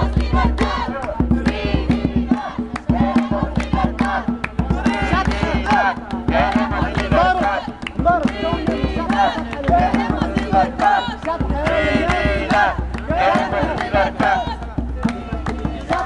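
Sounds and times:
group singing and chanting: 0:00.0 - 0:16.0
hand drum beat: 0:00.0 - 0:16.0
handclaps: 0:00.0 - 0:16.0.

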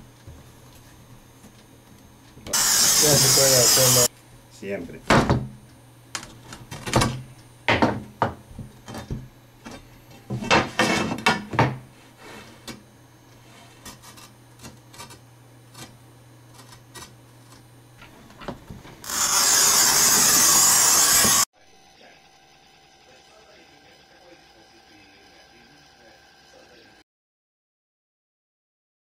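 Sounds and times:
tile cutter scoring wheel scratching: 0:02.6 - 0:04.1, 0:19.0 - 0:21.5.

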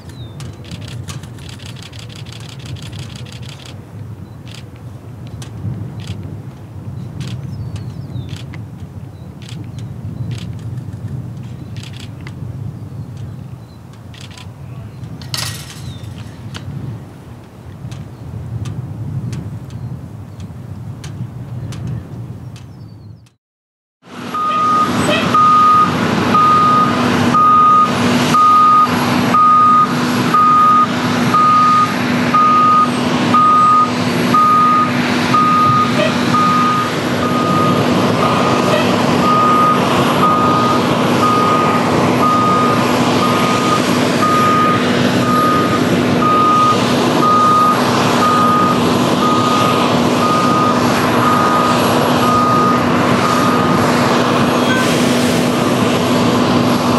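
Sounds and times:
machinery hum: 0:24.1 - 0:56.9
reversing alarm beeping: 0:24.3 - 0:53.8.

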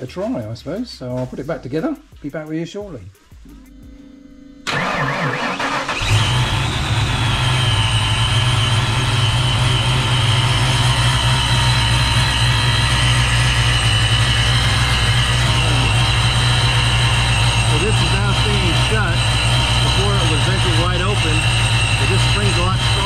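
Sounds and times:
high whine: 0:03.5 - 0:23.0
engine cranking and starting: 0:04.6 - 0:23.0
engine idling: 0:04.6 - 0:23.0.

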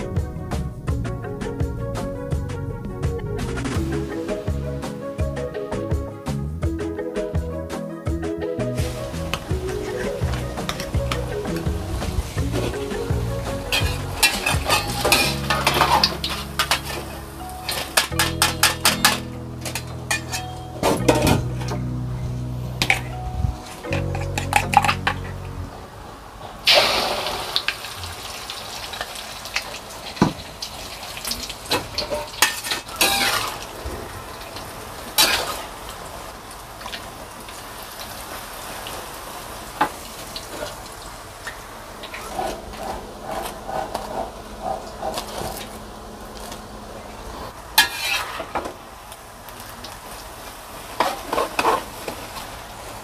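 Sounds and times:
oil sizzling in a wok: 0:12.1 - 0:19.1, 0:26.6 - 0:42.2, 0:47.5 - 0:53.0
metal spatula scraping a pan: 0:13.7 - 0:21.5, 0:32.0 - 0:33.6, 0:47.8 - 0:48.6, 0:51.0 - 0:51.9.

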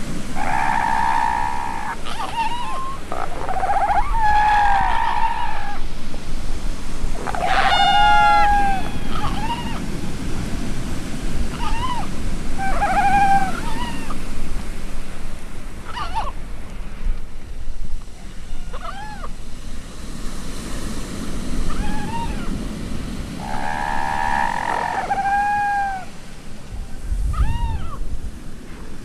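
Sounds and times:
surf rushing: 0:00.0 - 0:29.0
wild animal wavering cries: 0:00.4 - 0:05.8, 0:07.2 - 0:09.8, 0:11.5 - 0:14.2, 0:18.5 - 0:19.3, 0:21.7 - 0:22.5, 0:23.4 - 0:26.1.

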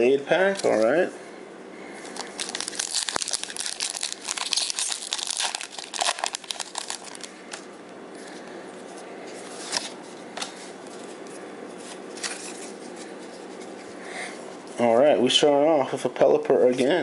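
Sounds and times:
foil wrapper crinkling and tearing: 0:02.0 - 0:07.7.

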